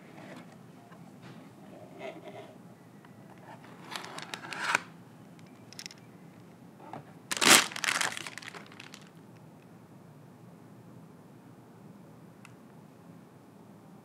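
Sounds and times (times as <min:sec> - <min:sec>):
plastic bag crinkling: 0:07.3 - 0:09.1.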